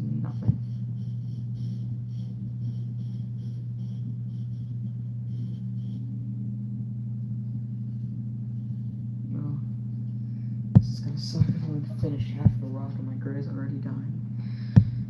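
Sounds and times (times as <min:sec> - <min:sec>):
marker squeaking on paper: 0:00.0 - 0:06.0
low electrical hum: 0:00.0 - 0:15.0.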